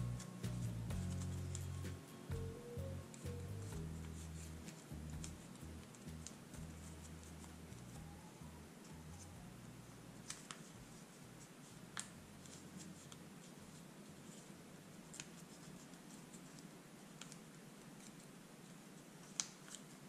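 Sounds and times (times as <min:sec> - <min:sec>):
paper bill crinkling: 0:00.0 - 0:01.9.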